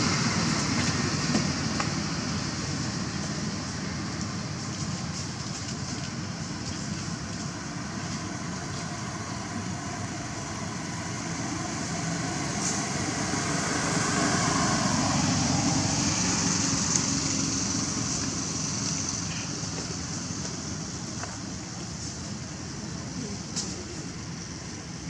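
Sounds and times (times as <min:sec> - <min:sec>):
constant high hiss: 0:00.0 - 0:25.0
vehicle passing: 0:09.4 - 0:20.3.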